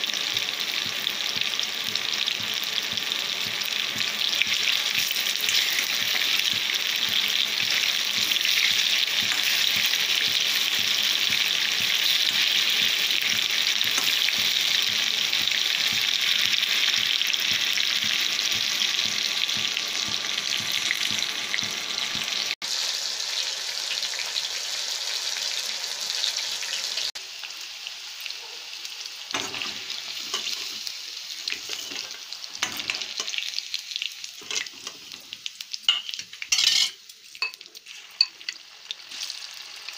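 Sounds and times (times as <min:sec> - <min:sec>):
food deep-frying in hot oil: 0:00.0 - 0:39.9
ladle knocking and scraping pan: 0:03.5 - 0:16.2.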